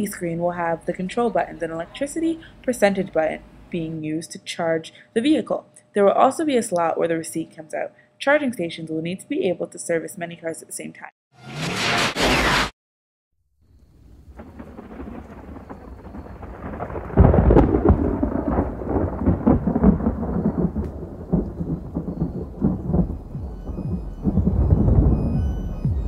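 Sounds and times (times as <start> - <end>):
rain: 13.7 - 25.3
thunder rolling: 13.8 - 26.0.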